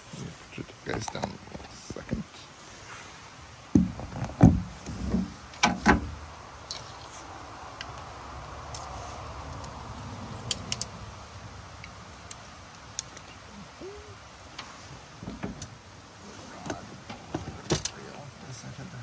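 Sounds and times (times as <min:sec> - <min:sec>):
sharp clicks and knocks of gear: 0:00.9 - 0:01.8, 0:10.4 - 0:11.0, 0:11.8 - 0:13.4, 0:16.7 - 0:18.0.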